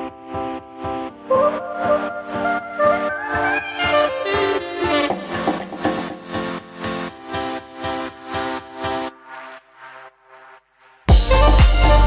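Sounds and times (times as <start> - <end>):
electronic music with heavy bass beat: 5.0 - 12.0.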